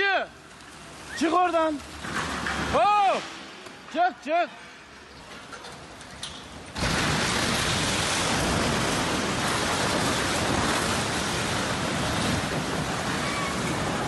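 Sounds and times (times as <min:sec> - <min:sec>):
building collapsing rumbling crash: 0:06.5 - 0:14.0.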